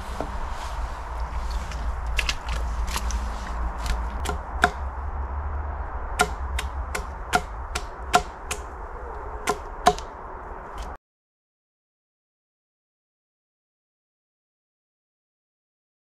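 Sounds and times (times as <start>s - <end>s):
low rumble: 0.0s - 11.0s
sharp knocks on wood: 4.2s - 4.9s, 6.2s - 8.7s, 9.5s - 10.1s.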